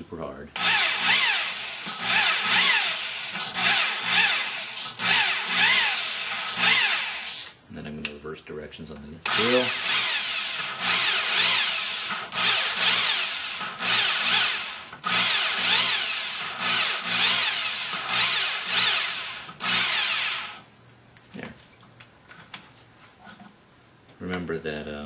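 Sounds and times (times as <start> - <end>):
cordless drill motor whining: 0.6 - 7.5, 9.3 - 20.7.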